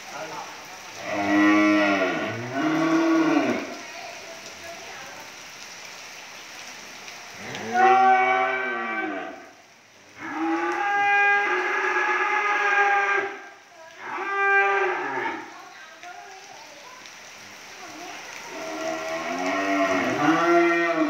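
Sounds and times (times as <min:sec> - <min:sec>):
cattle mooing: 0:01.0 - 0:03.7, 0:07.4 - 0:09.4, 0:18.5 - 0:21.0.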